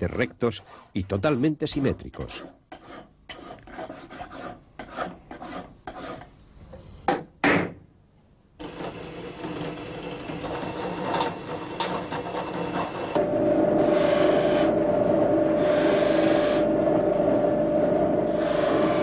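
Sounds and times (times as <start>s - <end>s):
hand file rasping on metal: 0.2s - 6.3s, 18.3s - 19.0s
drill press motor running: 8.6s - 19.0s.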